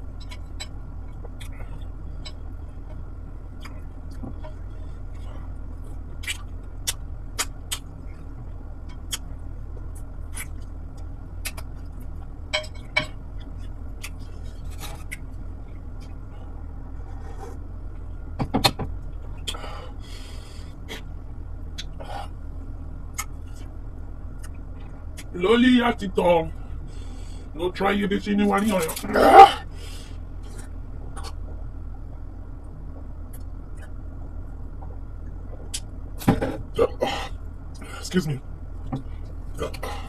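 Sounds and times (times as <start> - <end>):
steady low hum: 0.0 - 40.0
clicks and smacks of eating: 6.2 - 8.2, 8.9 - 15.3.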